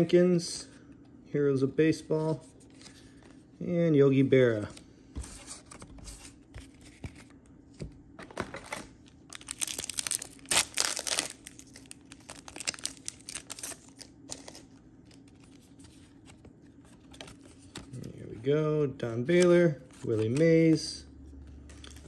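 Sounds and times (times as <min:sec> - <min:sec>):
wrapper tearing and crinkling: 0:09.3 - 0:14.6.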